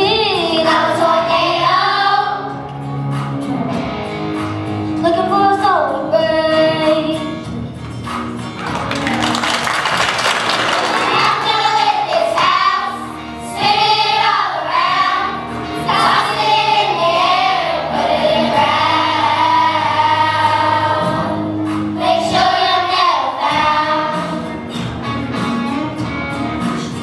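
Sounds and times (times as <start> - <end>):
children's choir singing: 0.0 - 2.6, 10.6 - 24.5
instrumental accompaniment: 2.4 - 27.0.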